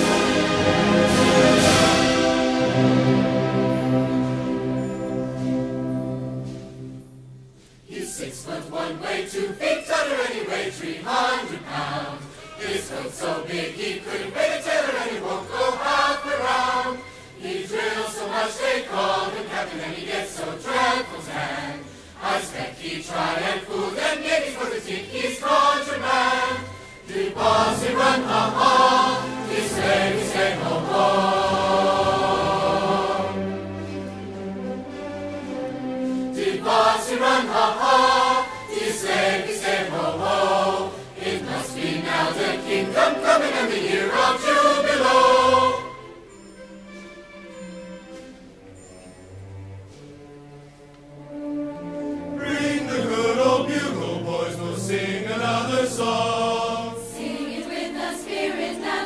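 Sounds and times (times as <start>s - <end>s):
choir singing: 0.0s - 50.0s, 51.1s - 59.0s.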